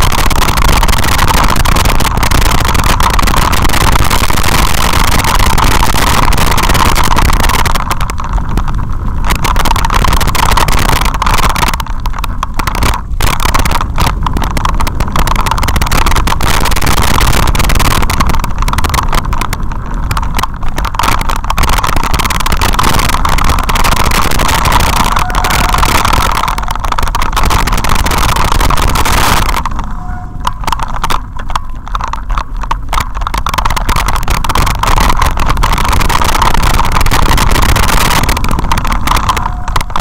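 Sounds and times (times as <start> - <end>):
vehicle rattling on rocky trail: 0.0 - 40.0.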